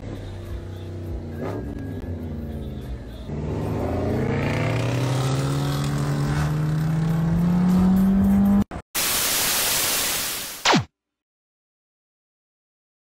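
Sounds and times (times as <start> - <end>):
car engine accelerating: 3.4 - 8.7
tv static hiss: 9.0 - 10.8.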